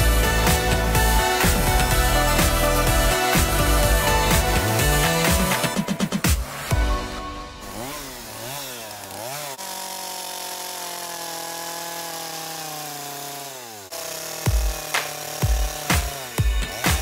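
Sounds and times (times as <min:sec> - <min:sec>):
music with heavy beat: 0:00.0 - 0:07.2, 0:15.4 - 0:17.0
chainsaw revving and cutting: 0:00.0 - 0:17.0.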